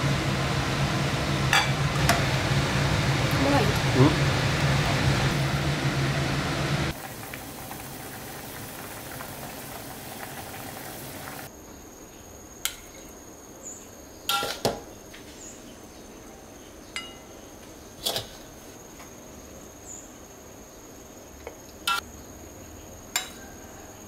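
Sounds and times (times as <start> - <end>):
kitchen background hiss: 0.0 - 24.0
metal spatula clinking on bowl: 17.0 - 17.3.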